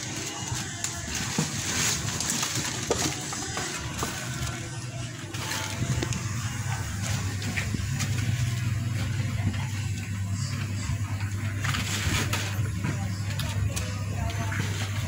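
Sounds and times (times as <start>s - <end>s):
plastic bags crinkling: 0.0s - 15.0s
vehicle engine running: 3.8s - 15.0s.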